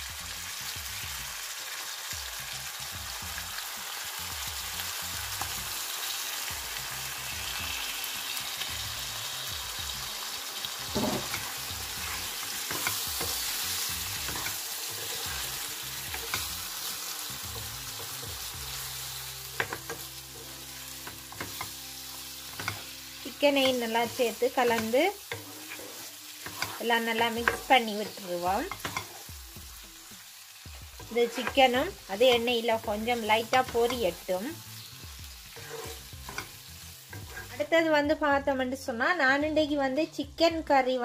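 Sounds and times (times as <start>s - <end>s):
chicken sizzling in hot oil: 0.0s - 38.3s
wooden spatula stirring: 14.2s - 16.5s, 23.6s - 27.7s.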